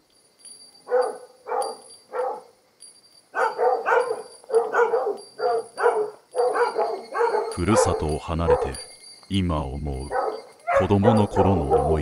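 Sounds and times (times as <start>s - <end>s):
dog barking: 0.9s - 2.5s, 3.4s - 8.8s, 10.1s - 12.0s.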